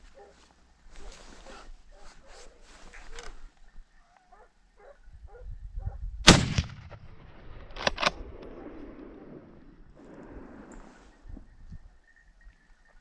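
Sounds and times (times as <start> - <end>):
rifle shot with echo: 6.2 - 9.7
sharp clicks: 7.6 - 8.5.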